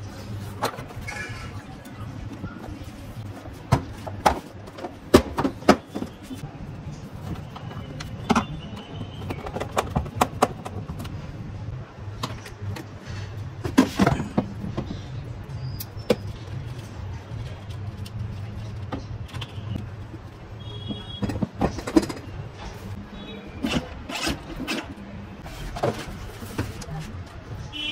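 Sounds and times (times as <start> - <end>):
plastic parts clicking and knocking: 7.2 - 11.2, 20.9 - 22.4.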